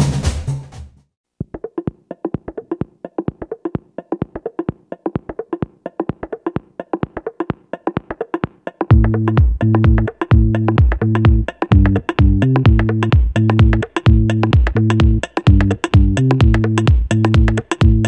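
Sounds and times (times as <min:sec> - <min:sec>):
wood block-like percussive notes: 0:01.4 - 0:18.0
deep bass and synth beat: 0:08.9 - 0:18.0.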